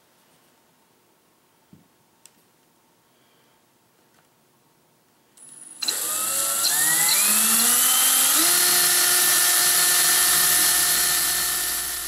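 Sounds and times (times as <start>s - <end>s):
cordless drill motor whine: 5.4s - 12.0s.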